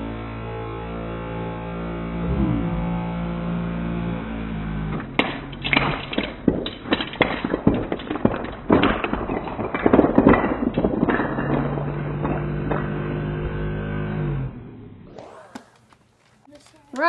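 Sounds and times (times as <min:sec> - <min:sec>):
wooden blocks clattering on floor: 0:05.1 - 0:13.4.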